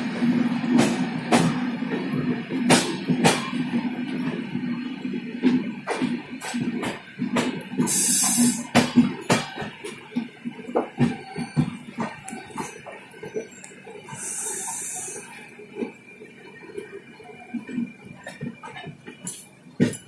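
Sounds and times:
train running rumble: 0.0s - 20.0s
train wheels clattering over rails: 0.0s - 20.0s
short bursts of hiss: 7.9s - 8.7s, 14.1s - 15.2s.

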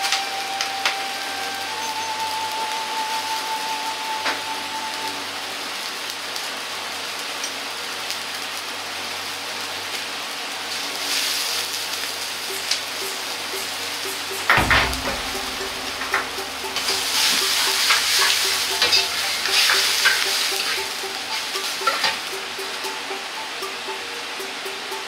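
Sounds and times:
water hissing in a wok: 0.0s - 25.0s.

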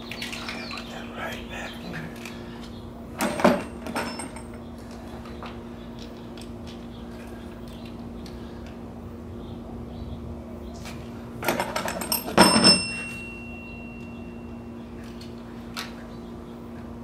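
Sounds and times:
steady low hum: 0.0s - 17.0s
metal clatter with ringing: 3.2s - 4.7s, 11.4s - 14.6s.

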